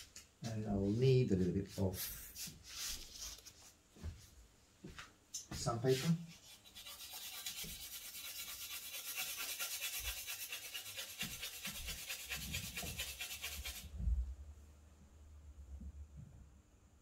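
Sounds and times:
charcoal rubbing on sandpaper: 5.9 - 13.9.

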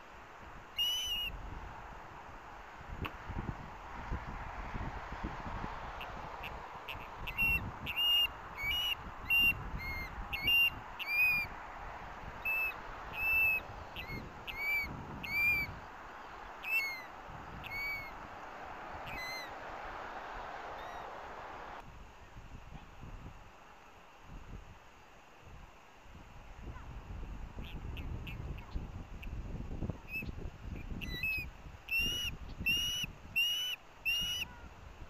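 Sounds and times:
distant traffic: 0.0 - 21.8
wind: 0.0 - 35.0
osprey whistling calls: 0.8 - 1.4, 6.0 - 11.5, 12.4 - 19.6, 20.7 - 21.2, 30.0 - 34.6.

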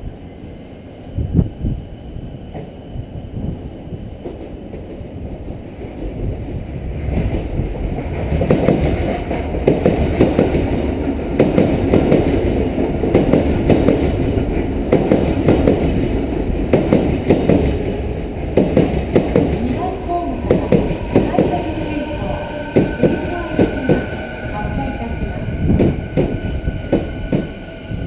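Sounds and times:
train rumble: 0.0 - 28.0
wheels clacking over rail joints: 7.2 - 19.8.

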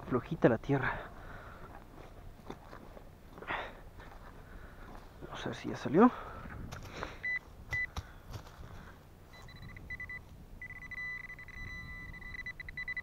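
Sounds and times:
metal detector beeping: 7.2 - 7.9, 9.3 - 13.0.

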